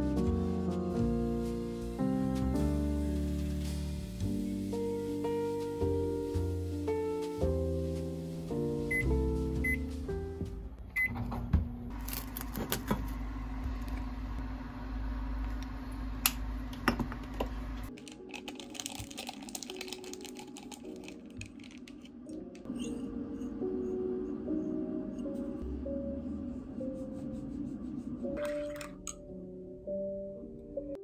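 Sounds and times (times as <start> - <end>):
microwave humming: 8.7 - 17.9
microwave beep: 8.9 - 9.9, 11.0 - 11.2.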